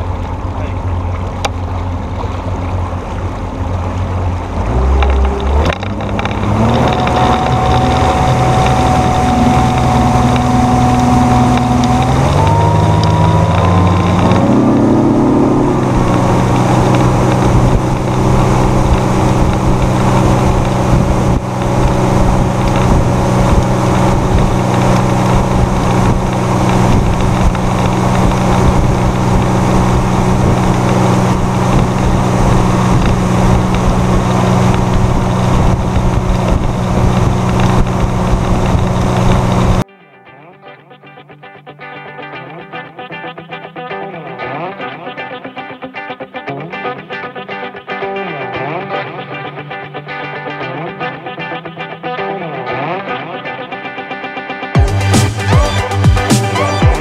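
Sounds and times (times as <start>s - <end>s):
outboard motor accelerating: 0.0s - 39.8s, 54.8s - 57.0s.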